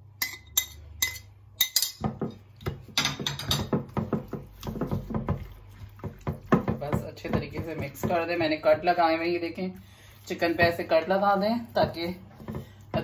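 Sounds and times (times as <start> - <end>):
hands rubbing marinade into chicken: 4.0 - 6.9, 7.8 - 12.9.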